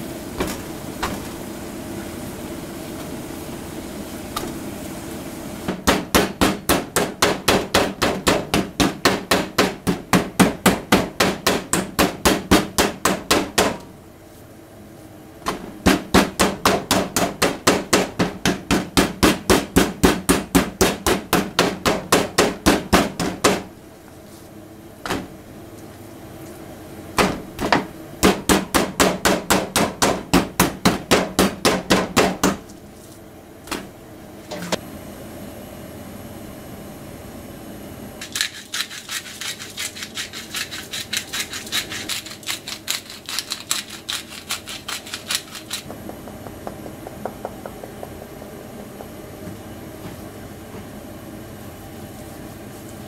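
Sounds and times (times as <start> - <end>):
meat mallet pounding chicken: 5.7 - 13.8, 15.5 - 23.7, 27.2 - 32.6, 38.2 - 49.6.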